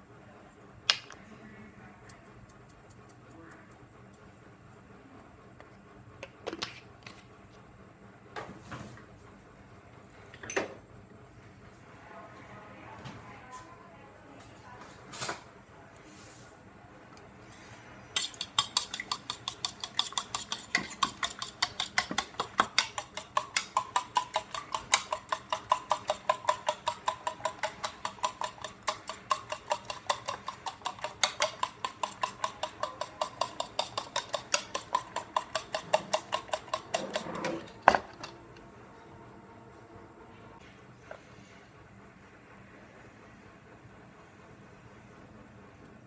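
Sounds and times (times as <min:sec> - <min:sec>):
fork whisking in metal bowl: 0:18.2 - 0:38.3.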